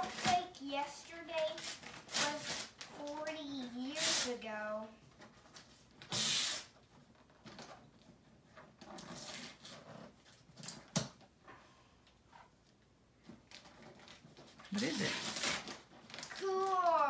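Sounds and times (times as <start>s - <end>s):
paper crackle: 0.0s - 0.5s, 1.4s - 3.3s, 13.3s - 17.0s
wrapping paper ripping: 1.4s - 3.1s, 3.8s - 4.3s, 13.5s - 17.0s.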